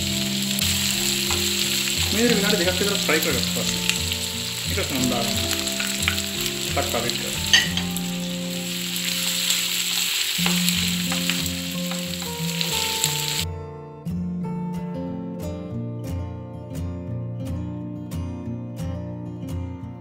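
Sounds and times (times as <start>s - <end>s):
food sizzling in a frying pan: 0.0s - 13.4s.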